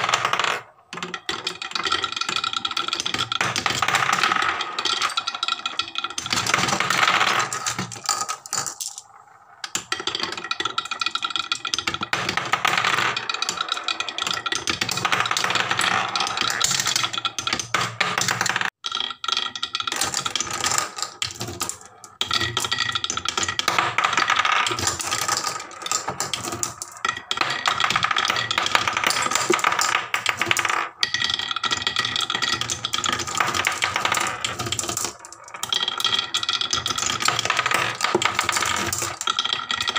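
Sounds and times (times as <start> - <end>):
marbles rattling on wooden tracks: 0.0 - 39.9.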